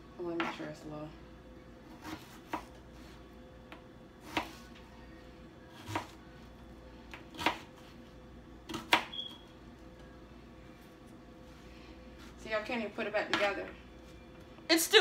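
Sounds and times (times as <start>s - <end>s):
knife slicing onion: 1.8s - 3.2s, 4.2s - 4.7s, 5.7s - 6.2s, 7.1s - 7.9s.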